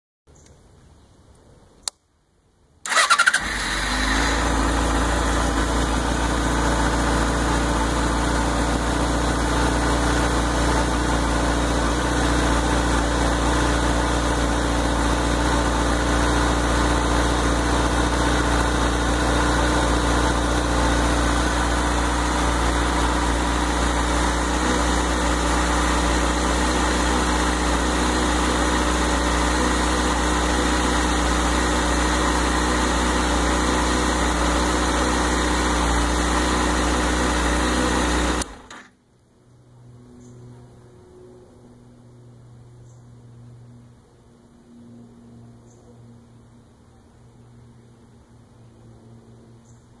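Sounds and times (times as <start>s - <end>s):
motorcycle engine starting and idling: 2.8s - 39.0s.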